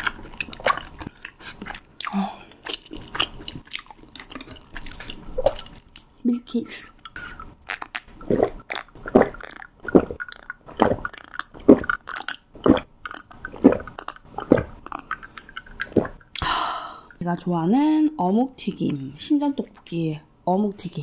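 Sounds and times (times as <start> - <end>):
gulps of soda being drunk: 7.1 - 17.2.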